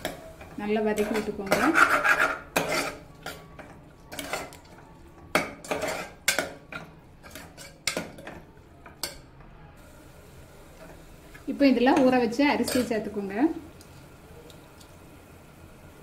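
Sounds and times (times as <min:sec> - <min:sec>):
metal ladle scraping pot: 0:00.9 - 0:03.4, 0:04.1 - 0:04.7, 0:05.4 - 0:08.0.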